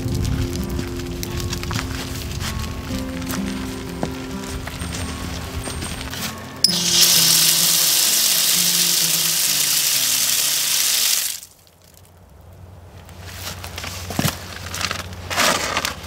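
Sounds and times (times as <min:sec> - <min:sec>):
water spraying from spigot: 0:06.6 - 0:11.5.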